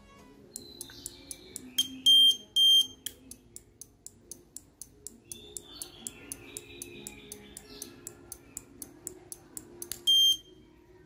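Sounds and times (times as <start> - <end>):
background music with ticking beat: 0.0 - 10.5
high-pitched buzzer beeps: 1.8 - 3.0, 10.0 - 10.5.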